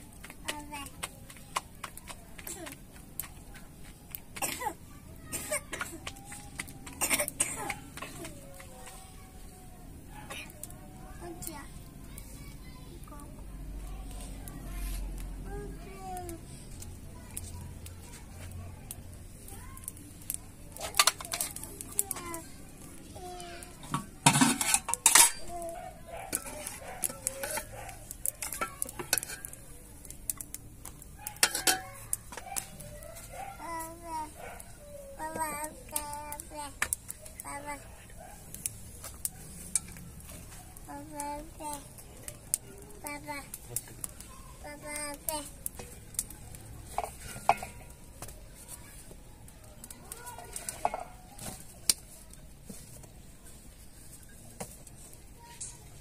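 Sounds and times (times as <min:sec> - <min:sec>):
metal ladle clinking against pot: 0:23.8 - 0:25.6, 0:31.3 - 0:32.4, 0:46.9 - 0:47.9
steel lid and pot clattering: 0:23.8 - 0:25.6, 0:26.3 - 0:27.7, 0:28.4 - 0:29.6, 0:31.3 - 0:32.5, 0:46.9 - 0:47.9, 0:50.5 - 0:51.1.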